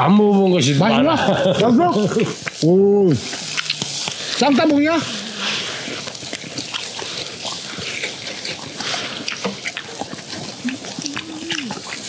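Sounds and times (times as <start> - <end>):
meat sizzling on charcoal grill: 0.0 - 12.0
man humming: 11.0 - 11.7.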